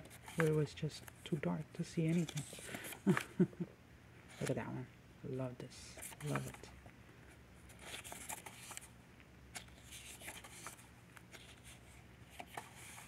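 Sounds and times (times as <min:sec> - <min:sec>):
paper rustling: 0:00.0 - 0:01.2, 0:02.0 - 0:03.5, 0:06.0 - 0:06.7, 0:07.7 - 0:08.9, 0:09.5 - 0:13.0.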